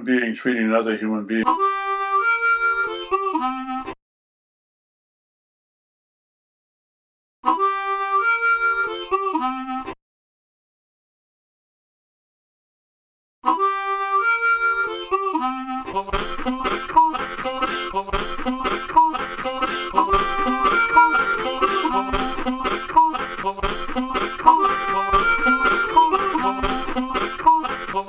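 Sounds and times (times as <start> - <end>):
blues harmonica: 1.4 - 4.0, 7.4 - 10.0, 13.4 - 28.0
plucked guitar rhythm: 16.2 - 28.0.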